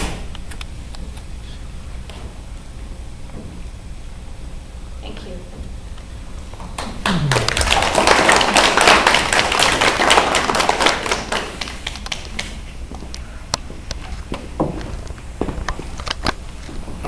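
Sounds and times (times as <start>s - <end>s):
audience applauding: 6.8s - 12.6s.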